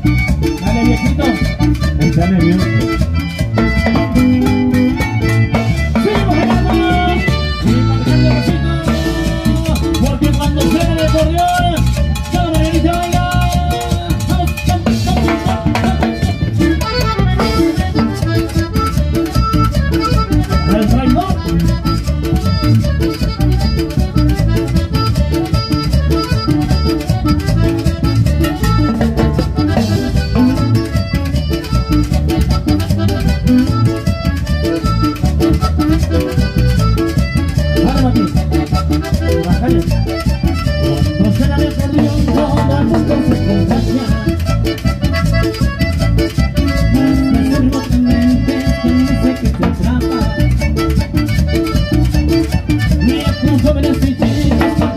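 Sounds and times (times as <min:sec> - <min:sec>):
accordion melody: 0:00.0 - 0:54.9
acoustic guitar: 0:00.0 - 0:54.9
electric bass: 0:00.0 - 0:54.9.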